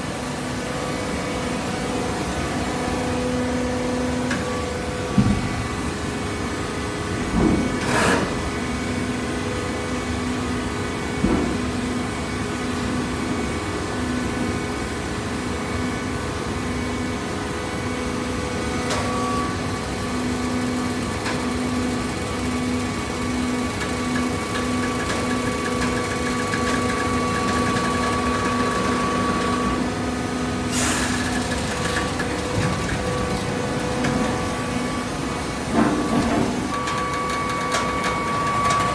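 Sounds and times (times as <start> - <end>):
baler motor and pump humming: 0.0 - 38.9.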